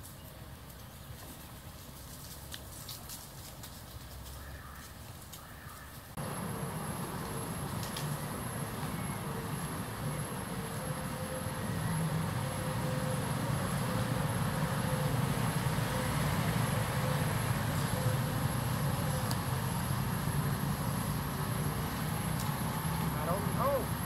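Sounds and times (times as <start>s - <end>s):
low engine rumble: 5.4s - 24.0s
faint high whine: 6.2s - 24.0s.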